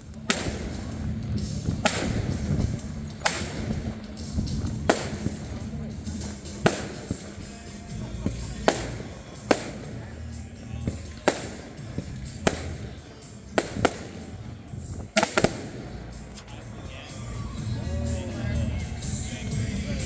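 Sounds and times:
music playing: 0:00.0 - 0:20.0
fireworks shells bursting: 0:01.6 - 0:16.5.

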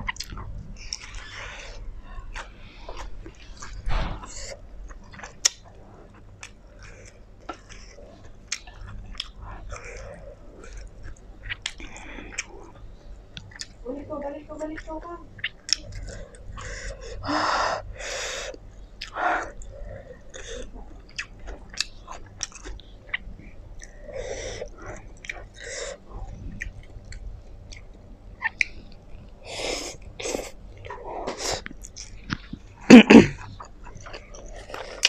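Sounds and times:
wet chewing: 0:00.0 - 0:13.8, 0:14.8 - 0:17.2, 0:18.4 - 0:32.7, 0:33.4 - 0:35.0
lip-smacking clicks: 0:26.6 - 0:28.8.

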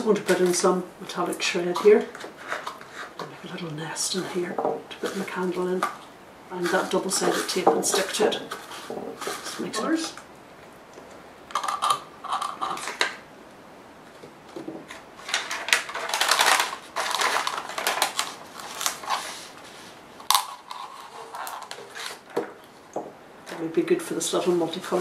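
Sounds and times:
plastic cup crinkling: 0:11.1 - 0:13.2, 0:14.6 - 0:22.7.

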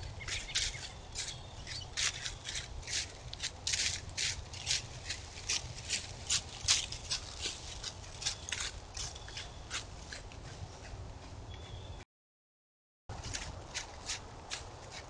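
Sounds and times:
footsteps crunching dry leaves: 0:00.3 - 0:10.1.

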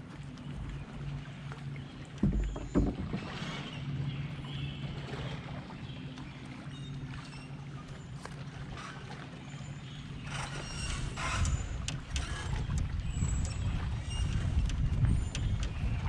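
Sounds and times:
low hum: 0:00.0 - 0:08.6.

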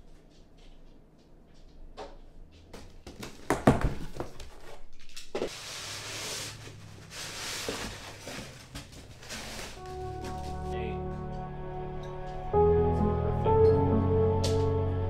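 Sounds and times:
cardboard box rustling and scraping: 0:05.5 - 0:10.6.

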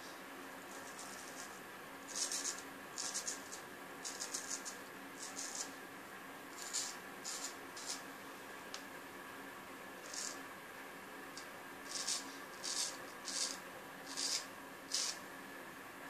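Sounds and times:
razor rasping through stubble: 0:01.0 - 0:05.7, 0:06.6 - 0:08.0, 0:11.9 - 0:15.2.

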